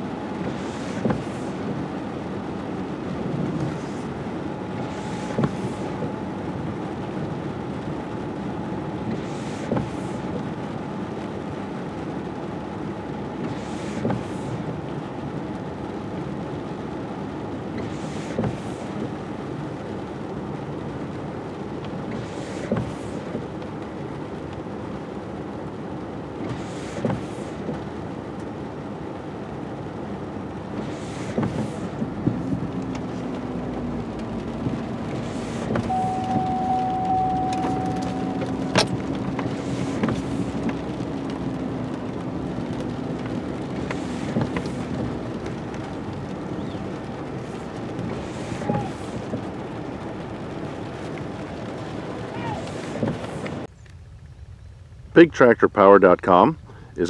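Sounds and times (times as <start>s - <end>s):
engine drone: 0.0s - 16.2s, 30.2s - 54.1s
windshield wipers sweeping: 0.0s - 53.7s
tractor engine hum: 0.0s - 57.0s
steady tone: 35.8s - 39.0s.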